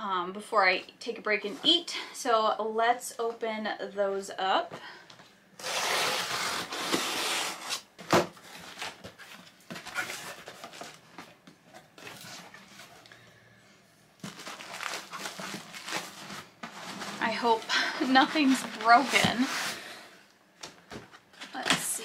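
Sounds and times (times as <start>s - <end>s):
cardboard tearing: 5.6s - 9.0s, 14.2s - 17.4s
packaging rustling: 5.6s - 13.1s, 14.2s - 19.9s.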